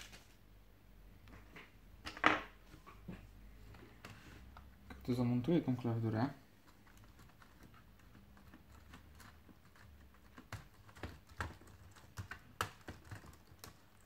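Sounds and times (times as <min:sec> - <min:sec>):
plastic keyboard clicks: 0:07.0 - 0:14.0.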